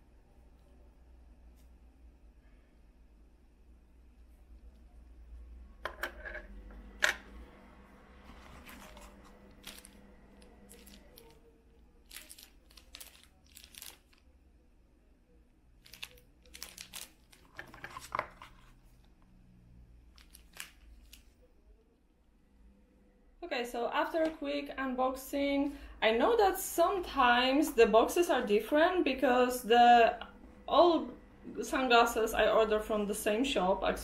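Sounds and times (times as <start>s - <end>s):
plastic packaging crinkling: 8.4s - 14.3s, 15.8s - 18.8s, 20.1s - 21.4s.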